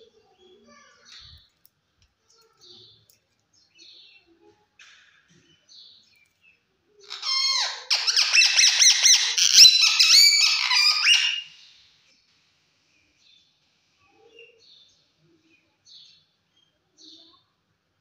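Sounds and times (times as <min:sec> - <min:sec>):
parakeet chattering calls: 0:07.0 - 0:11.7.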